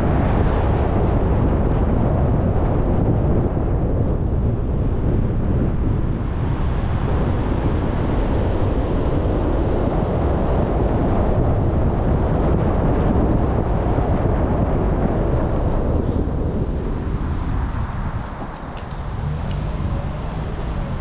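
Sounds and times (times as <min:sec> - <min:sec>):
low rumble of car: 0:00.0 - 0:21.0
wind noise: 0:00.0 - 0:21.0
tyre noise on road: 0:13.3 - 0:21.0.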